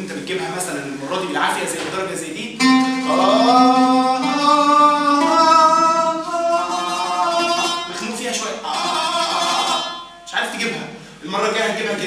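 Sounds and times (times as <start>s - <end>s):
oud: 1.8s - 10.3s
man singing held vowel notes: 2.6s - 10.1s.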